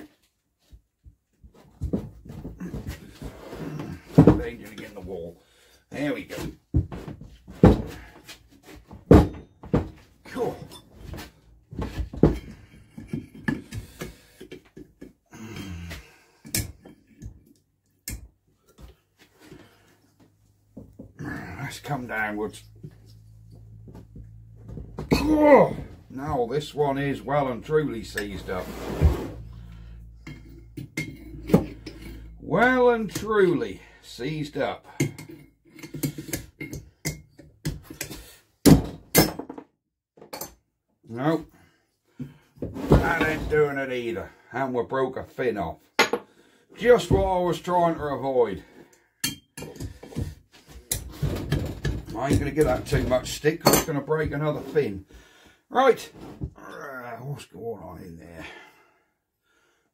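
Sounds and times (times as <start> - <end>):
spanner clinking and scraping: 29.4 - 33.6.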